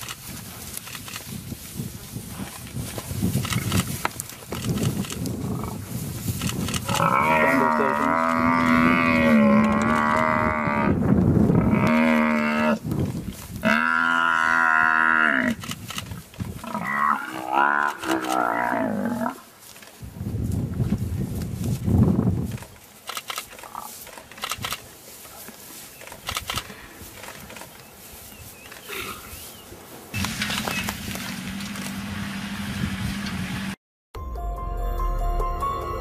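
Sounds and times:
buffalo bellowing in distress: 6.8s - 12.8s, 13.6s - 15.6s, 16.6s - 19.4s.

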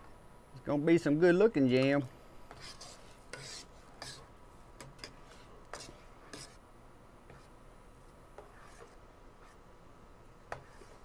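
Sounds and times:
metal spoon scraping a pot: 2.6s - 4.2s.

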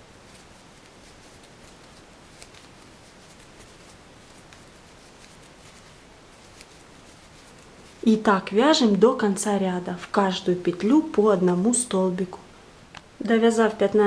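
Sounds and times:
faint steady hiss: 0.0s - 14.0s.

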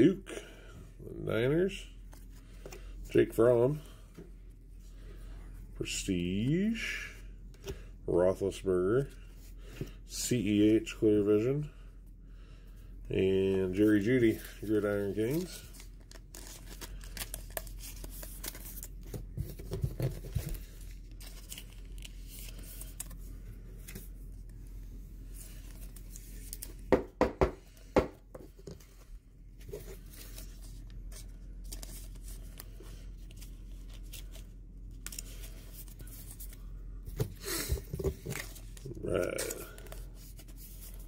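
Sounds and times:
cards rustling and clicking: 13.7s - 24.6s, 25.2s - 27.0s, 27.6s - 41.0s.

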